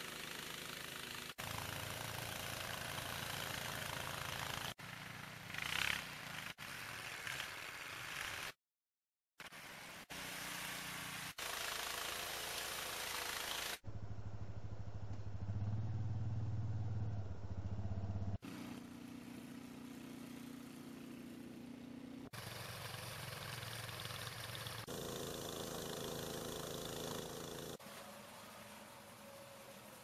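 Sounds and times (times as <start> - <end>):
snowblower clearing snow: 0.0 - 8.6, 9.4 - 16.7, 18.1 - 30.0
atv engine running under load: 13.9 - 27.8.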